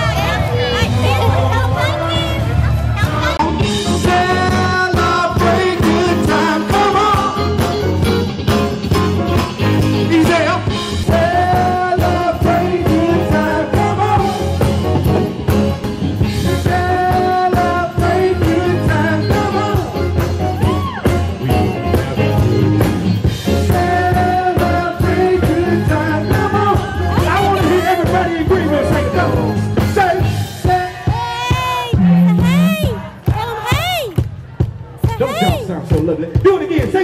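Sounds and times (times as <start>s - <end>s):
live rock band playing: 0.0s - 35.7s
steady bass line: 0.0s - 37.0s
person singing: 3.1s - 8.0s, 9.9s - 14.8s, 16.4s - 20.9s, 23.5s - 29.8s.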